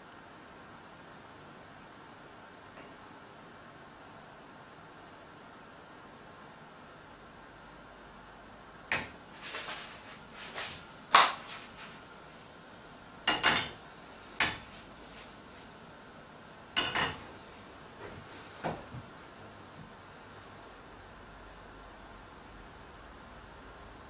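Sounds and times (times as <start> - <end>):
faint steady hiss: 0.0 - 24.0
utensils clinking on pan and bowl: 8.9 - 9.8, 13.3 - 13.8, 14.4 - 14.8, 16.8 - 17.3.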